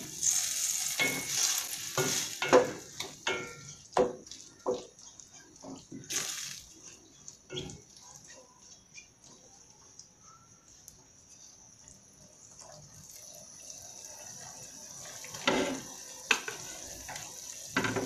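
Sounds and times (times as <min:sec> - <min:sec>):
hiss: 0:00.0 - 0:02.8, 0:06.1 - 0:06.7
meat sizzling: 0:00.0 - 0:09.4, 0:11.6 - 0:18.0.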